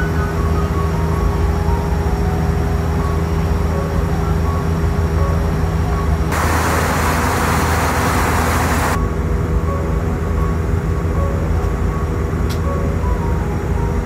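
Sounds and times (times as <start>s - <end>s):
aircraft cabin drone: 6.3s - 9.0s
hiss: 6.3s - 9.0s.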